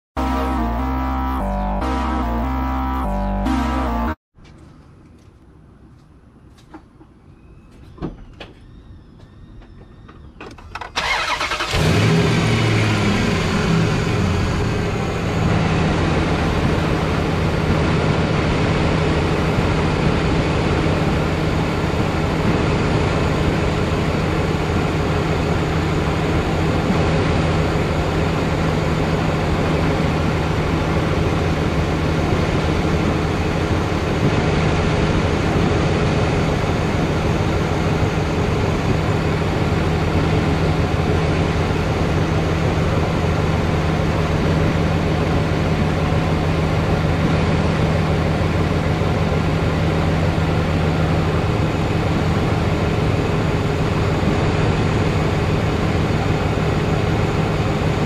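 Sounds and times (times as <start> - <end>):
starter motor cranking: 10.8 - 12.1
engine idling: 11.0 - 34.0.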